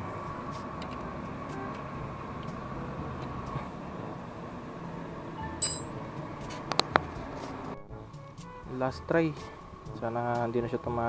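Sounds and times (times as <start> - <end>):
sharp metallic clink: 5.6 - 6.0.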